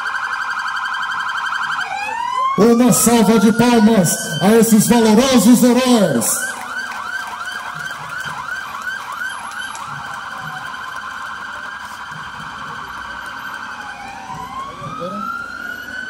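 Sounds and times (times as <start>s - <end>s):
electronic police siren: 0.0s - 16.0s.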